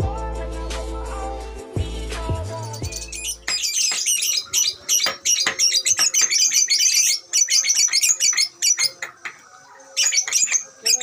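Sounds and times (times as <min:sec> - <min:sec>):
lovebird chattering chirps: 0:02.8 - 0:11.0.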